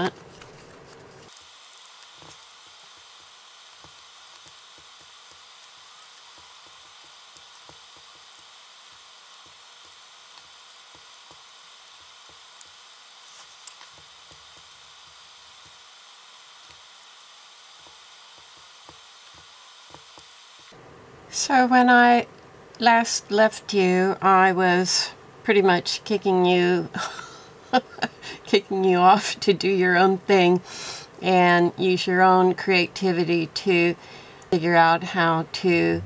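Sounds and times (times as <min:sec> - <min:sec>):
steady faint hiss: 0:00.0 - 0:36.0
soft tapping and rubbing on paper: 0:13.3 - 0:14.7.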